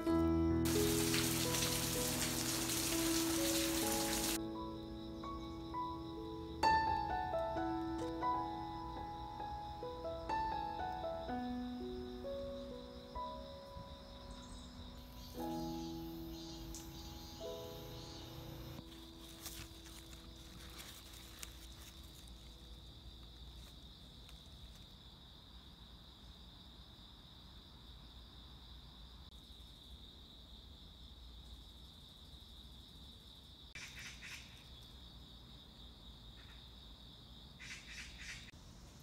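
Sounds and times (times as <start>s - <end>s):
high-pitched insect chorus: 0.7s - 39.0s
rustling noise bursts: 19.0s - 22.6s.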